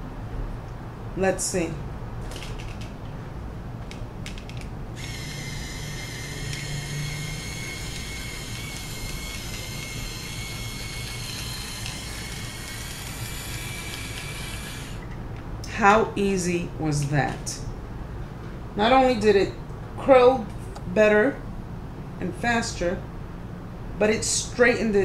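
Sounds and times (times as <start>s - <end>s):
hot brush motor whining: 5.0s - 15.1s.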